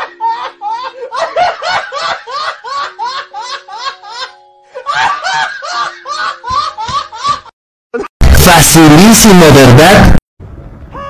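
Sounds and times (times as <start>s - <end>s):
person laughing hard: 0.0s - 8.1s.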